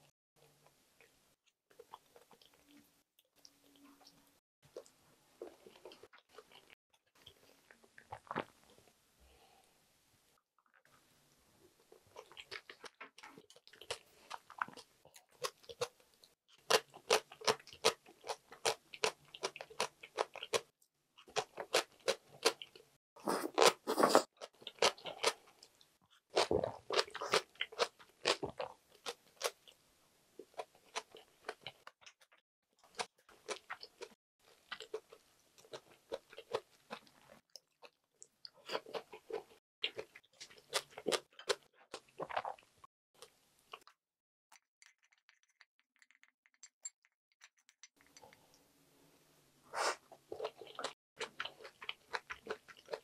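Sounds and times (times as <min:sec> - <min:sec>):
person chewing food: 0:03.4 - 0:08.8, 0:11.8 - 0:29.8, 0:30.4 - 0:43.9, 0:49.8 - 0:53.0.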